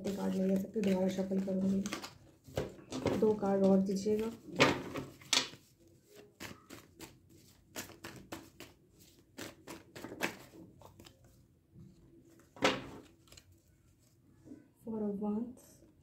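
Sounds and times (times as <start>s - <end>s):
cards being shuffled: 0.0s - 11.3s, 12.3s - 13.7s.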